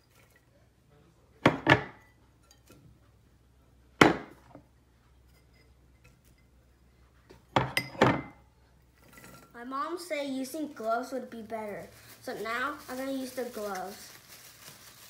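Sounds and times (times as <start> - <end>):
ceramic bowl clinking against glass: 1.6 - 2.8, 7.5 - 8.4.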